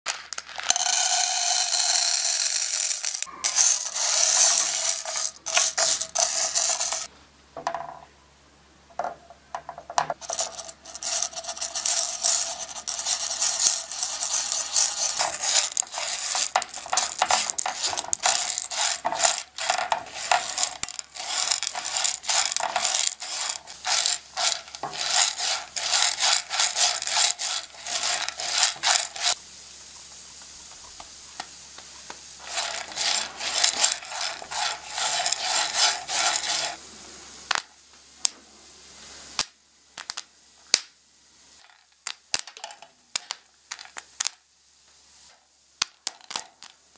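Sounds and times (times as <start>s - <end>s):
popcorn kernels rattling in pan: 0.1s - 7.1s, 10.1s - 29.4s, 32.4s - 36.8s, 41.6s - 44.3s, 45.8s - 46.8s
spatula stirring kernels: 0.1s - 7.1s, 10.2s - 29.4s, 32.4s - 36.8s.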